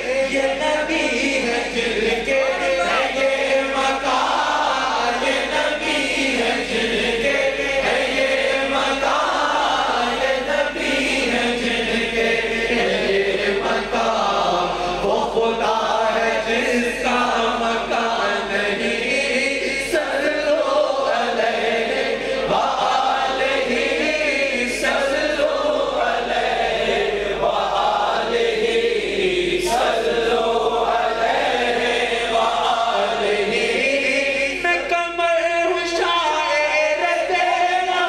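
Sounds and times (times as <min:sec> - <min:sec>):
men chanting together: 0:00.0 - 0:34.9, 0:35.8 - 0:38.0
person singing into a microphone: 0:32.4 - 0:38.0.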